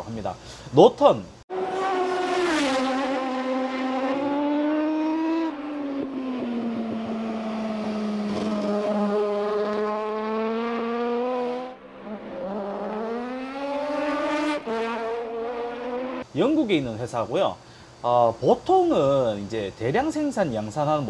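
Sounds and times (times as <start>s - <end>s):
motorcycle engine racing past: 1.5s - 16.2s.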